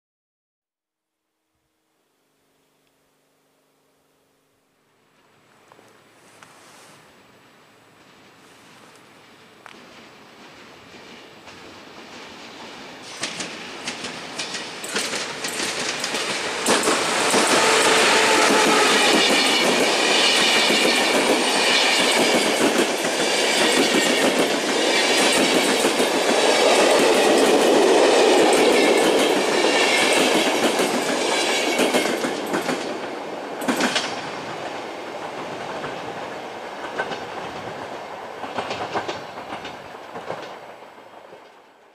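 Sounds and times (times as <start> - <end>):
train rolling rumble: 6.6 - 41.9
wheels clacking over rail joints: 9.2 - 41.6.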